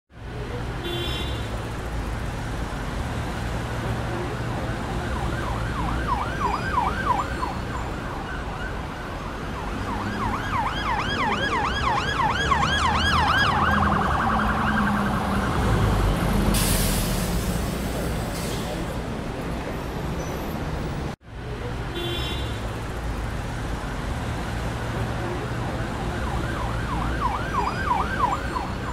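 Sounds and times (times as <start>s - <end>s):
city traffic rumble: 0.1s - 28.9s
emergency siren wailing: 4.2s - 16.5s, 25.4s - 28.9s.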